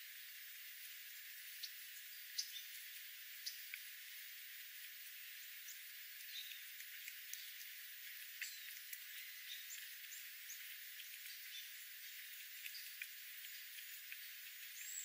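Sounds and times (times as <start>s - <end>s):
faint steady hiss: 0.0s - 15.0s
birds pecking on gravel: 1.4s - 15.0s
high bird chirps: 12.7s - 15.0s.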